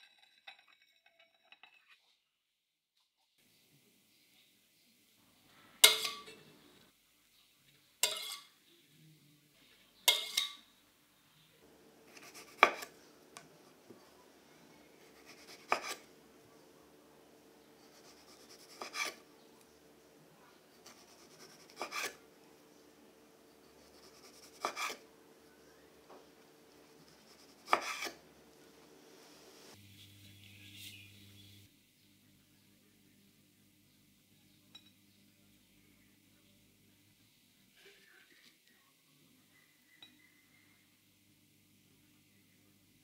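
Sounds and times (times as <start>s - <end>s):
metal spatula scraping: 0.0s - 2.2s, 5.5s - 6.6s, 8.0s - 8.6s, 10.0s - 10.7s, 14.8s - 16.2s, 17.6s - 19.5s, 20.7s - 22.3s, 23.5s - 25.1s, 26.6s - 28.2s
knife cutting onto wooden board: 12.1s - 12.9s, 15.2s - 16.0s, 18.3s - 19.2s, 24.3s - 25.0s, 27.6s - 28.2s.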